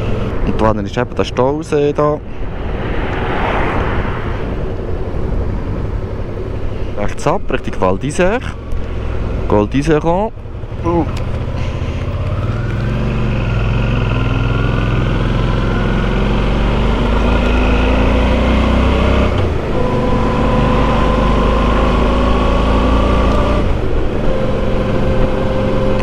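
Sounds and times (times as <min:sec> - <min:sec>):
motorcycle engine accelerating: 0:08.5 - 0:26.0.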